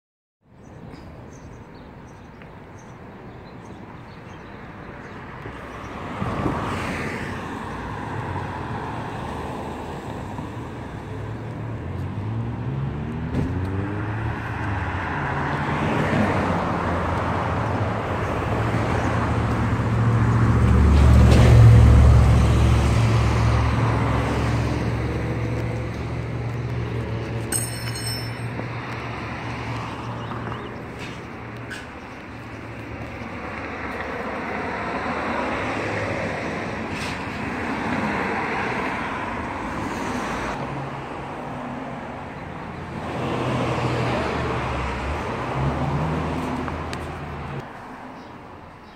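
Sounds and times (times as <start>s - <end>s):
cars passing: 0.7s - 48.9s
car engines speeding up: 11.6s - 27.4s.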